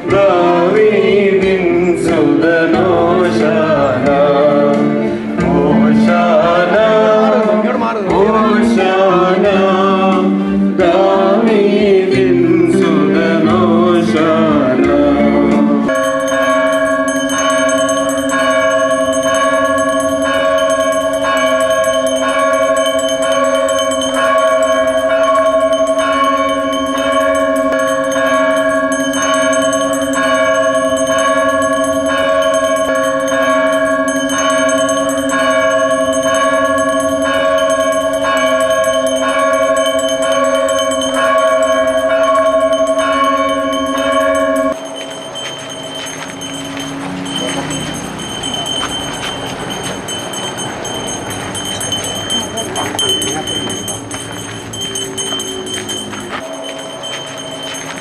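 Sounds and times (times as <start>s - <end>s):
group singing a hymn: 0.0s - 16.3s
church bell ringing: 0.0s - 58.0s.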